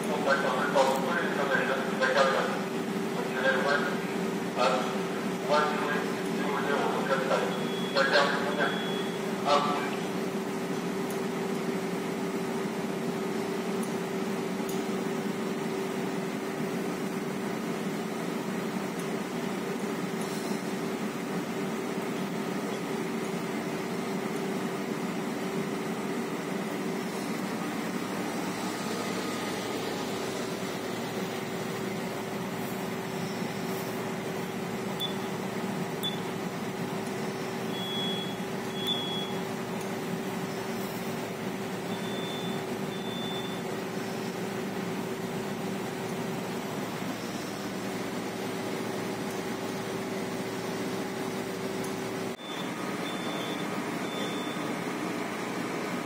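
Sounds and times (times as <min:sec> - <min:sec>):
ship bridge hum: 0:00.0 - 0:56.0
high electronic beeps: 0:07.5 - 0:09.2, 0:35.0 - 0:35.3, 0:37.7 - 0:39.4, 0:41.9 - 0:43.6, 0:52.4 - 0:54.6.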